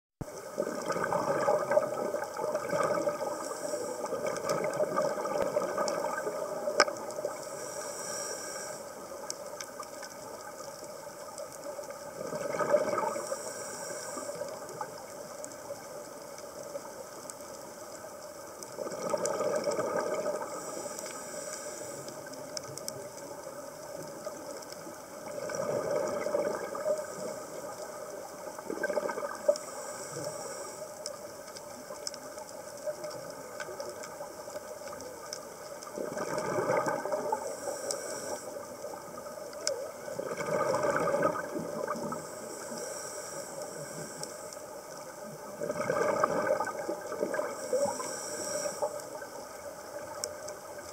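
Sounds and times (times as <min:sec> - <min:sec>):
bubbling exhaled air: 0:00.4 - 0:08.8, 0:12.2 - 0:14.9, 0:18.8 - 0:22.3, 0:25.2 - 0:27.6, 0:28.6 - 0:30.7, 0:35.9 - 0:38.5, 0:40.1 - 0:44.2, 0:45.5 - 0:49.2
hissing regulator inhale: 0:02.2 - 0:10.6, 0:13.0 - 0:15.6, 0:19.6 - 0:22.6, 0:26.7 - 0:28.3, 0:29.3 - 0:31.4, 0:36.8 - 0:39.0, 0:41.1 - 0:45.1, 0:46.7 - 0:49.4.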